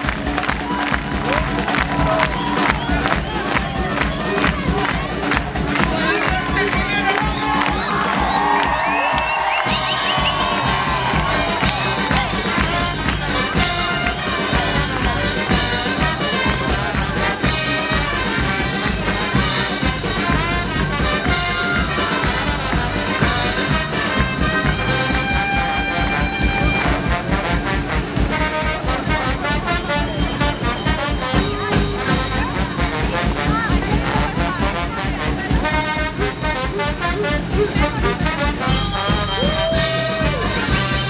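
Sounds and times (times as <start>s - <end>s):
cumbia band with brass: 0.0s - 41.0s
horn holding high note: 9.4s - 41.0s.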